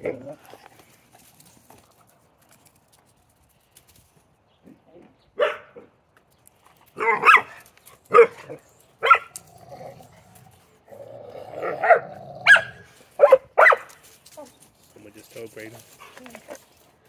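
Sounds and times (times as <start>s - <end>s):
dog barking: 5.4s - 5.9s, 7.0s - 9.3s, 11.7s - 13.9s
dog growling: 9.3s - 12.8s.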